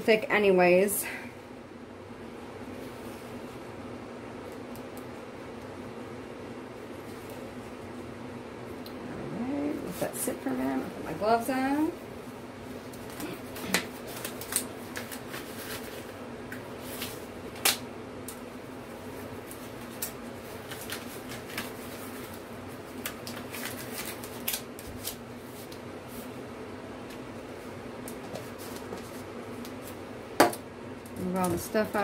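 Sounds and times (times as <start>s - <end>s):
steady low hum: 0.0s - 32.0s
disposable gloves crinkling and snapping: 12.7s - 25.9s.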